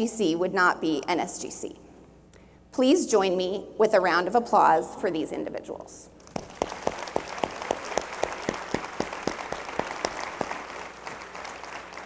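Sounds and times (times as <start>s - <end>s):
audience applauding: 6.4s - 12.0s
close single person clapping: 6.4s - 12.0s.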